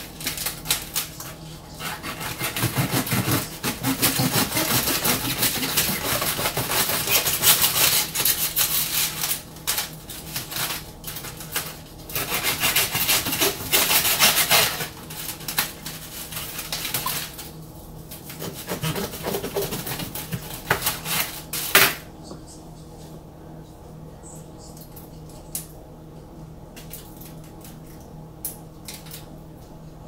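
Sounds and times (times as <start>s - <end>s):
foil rustling: 0.0s - 21.9s
knife sawing through stems: 1.7s - 9.4s, 12.1s - 15.0s, 18.3s - 21.4s.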